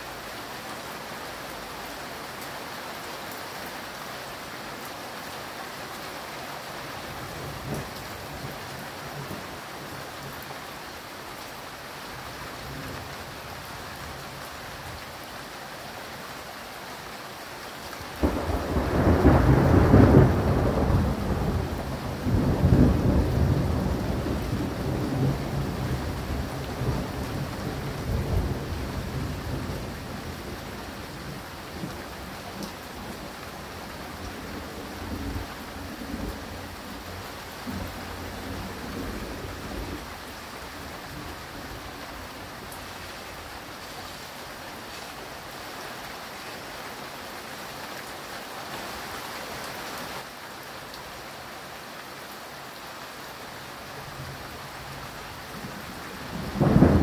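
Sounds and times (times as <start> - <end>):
steady rain: 0.0 - 57.0
rumbling thunder: 18.2 - 30.8, 56.2 - 57.0.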